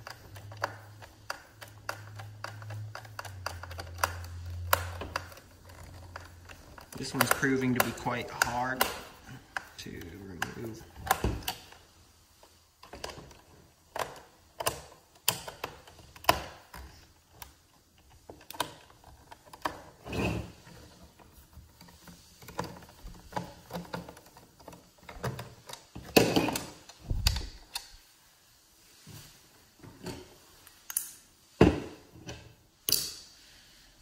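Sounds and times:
screwdriver clicking on screw: 0.0s - 9.7s.

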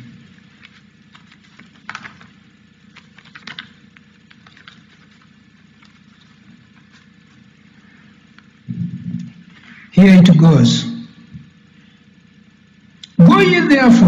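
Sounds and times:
low room hum: 0.0s - 14.0s
pages rustling: 0.3s - 8.5s.

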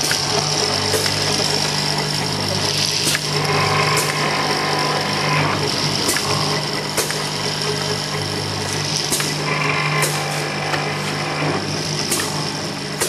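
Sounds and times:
high machine whine: 0.0s - 13.0s
machine motor hum with hiss: 0.0s - 13.0s
sharp machine clicks: 5.7s - 10.3s.

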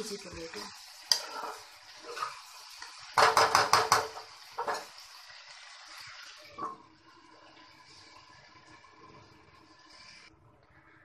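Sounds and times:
spatula stirring curry: 0.2s - 10.3s
spatula knocking against pan: 3.2s - 4.8s.

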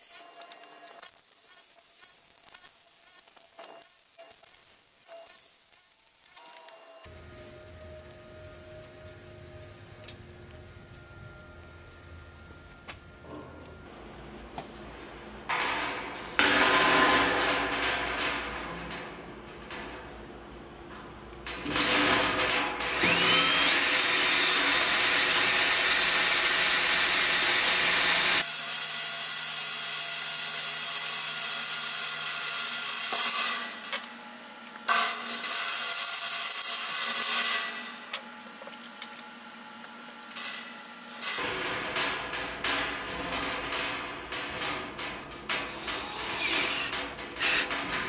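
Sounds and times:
cordless drill through sheet steel: 21.7s - 34.1s, 45.7s - 47.8s.

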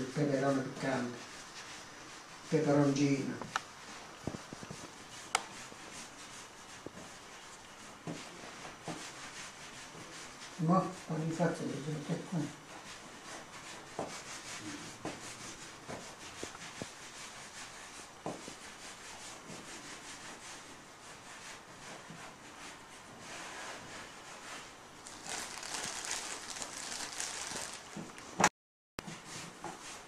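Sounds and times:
hands rubbing dough on wood: 0.1s - 28.4s, 29.0s - 30.0s
plastic bag rustling: 25.0s - 28.5s.

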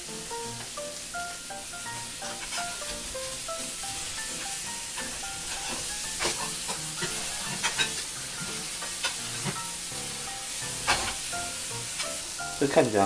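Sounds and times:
patties sizzling in frying pan: 0.0s - 13.0s
utensil clicking against pan: 5.0s - 9.7s, 10.8s - 11.3s.

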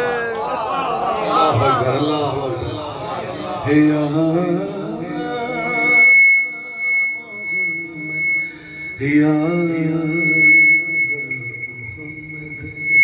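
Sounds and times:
man singing unaccompanied: 3.4s - 13.0s
steady high whistle: 5.1s - 13.0s.

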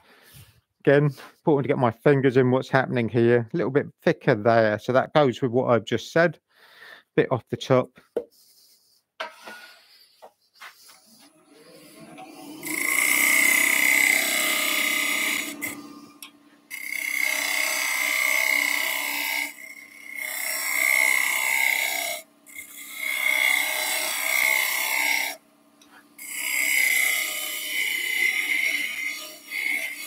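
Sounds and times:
wood lathe tool scraping wood: 8.3s - 30.0s.

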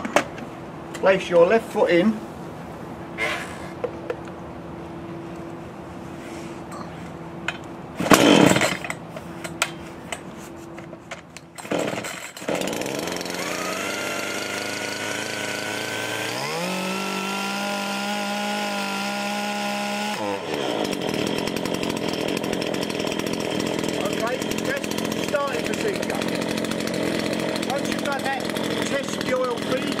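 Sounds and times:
chainsaw engine revving: 8.0s - 9.0s, 11.6s - 30.0s
chainsaw pull-start cord: 8.0s - 10.2s, 11.4s - 30.0s.

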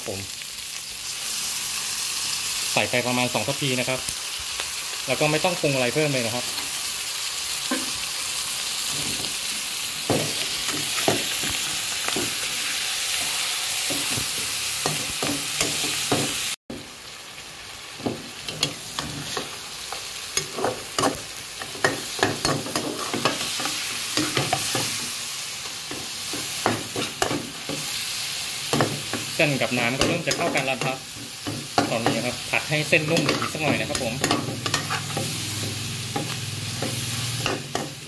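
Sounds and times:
noodles sizzling in a wok: 0.0s - 38.0s
spatula scraping a pan: 18.4s - 25.2s, 29.9s - 38.0s.

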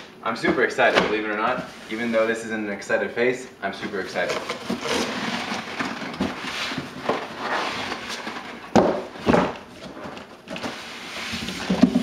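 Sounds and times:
cardboard box rustling and scraping: 4.2s - 12.0s.

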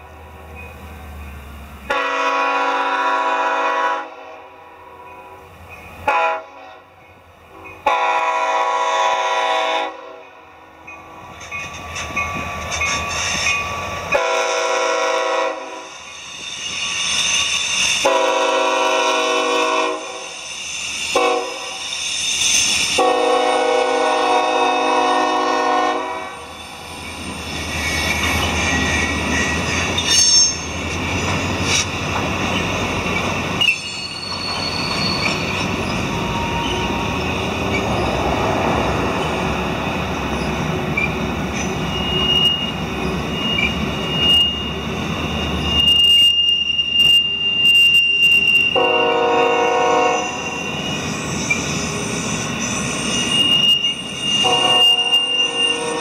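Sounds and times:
train wheels rumbling on rail: 0.0s - 56.0s
high-pitched wheel squeal: 15.5s - 23.7s, 26.2s - 38.3s, 40.4s - 56.0s.

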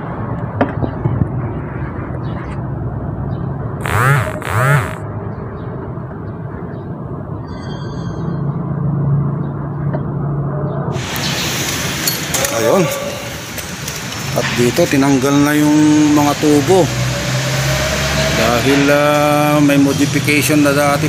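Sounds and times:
power tool spinning up: 3.8s - 5.0s
workshop rumble: 3.8s - 5.0s.

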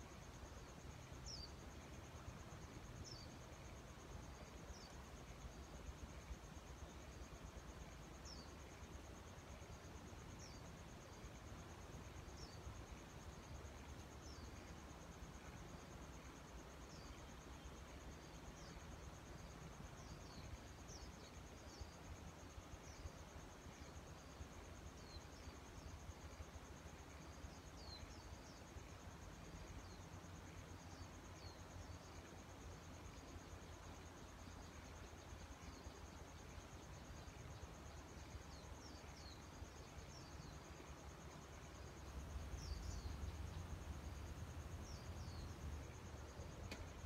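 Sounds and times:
insect chorus pulsing trill: 0.1s - 47.0s.

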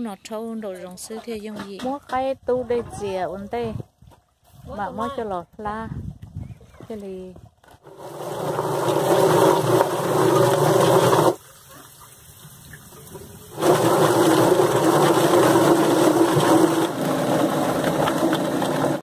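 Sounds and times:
water washing through drum: 7.8s - 19.0s.

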